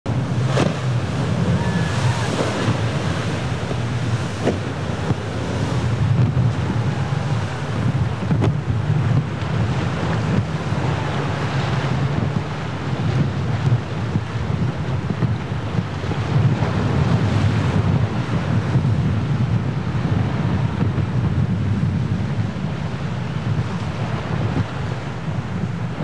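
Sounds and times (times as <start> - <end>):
rough surf breaking: 0.0 - 26.0
wind buffeting microphone: 0.0 - 26.0.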